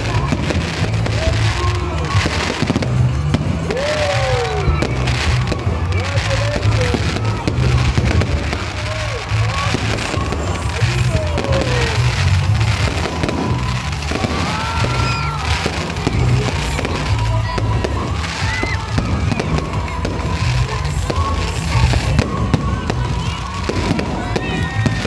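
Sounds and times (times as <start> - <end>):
fireworks bursting and crackling: 0.0 - 25.0
music with heavy pulsing bass: 0.0 - 25.0
gliding firework whistles: 6.6 - 25.0.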